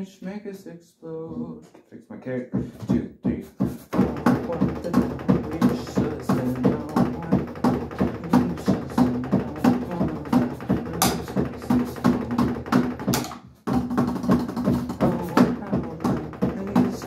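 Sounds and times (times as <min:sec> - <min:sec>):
drumsticks on electronic drum pads: 0:02.6 - 0:17.0.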